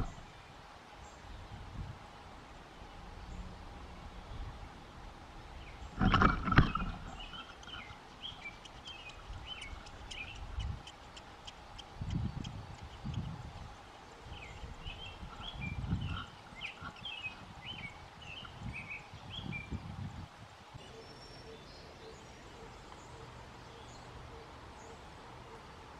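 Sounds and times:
birds chirping: 0:02.8 - 0:19.9.

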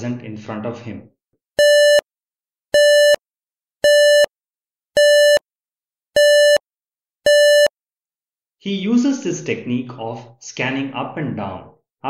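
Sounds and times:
electronic beeps: 0:01.6 - 0:02.0, 0:02.8 - 0:03.2, 0:03.8 - 0:04.3, 0:05.0 - 0:05.4, 0:06.2 - 0:06.6, 0:07.3 - 0:07.7.

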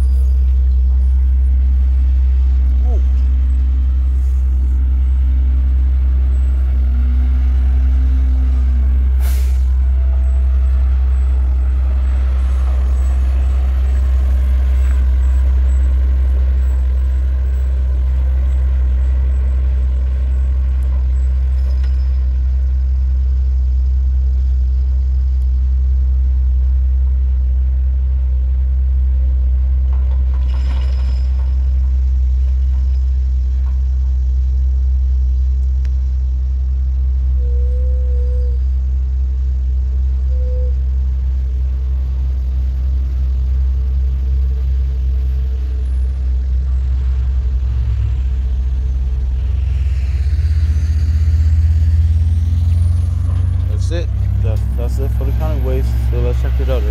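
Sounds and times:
garbage truck rumbling: 0:00.0 - 0:56.9
surrounding traffic: 0:00.0 - 0:56.9
air brake hiss: 0:09.2 - 0:09.8
brief tone: 0:37.3 - 0:38.7, 0:40.2 - 0:41.0.

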